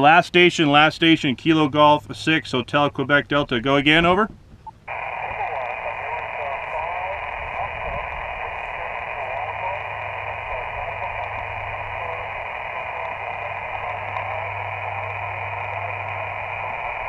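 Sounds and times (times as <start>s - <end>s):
low steady hum: 0.0s - 17.0s
faint distant radio voice: 4.9s - 17.0s
radio band noise hiss: 4.9s - 17.0s.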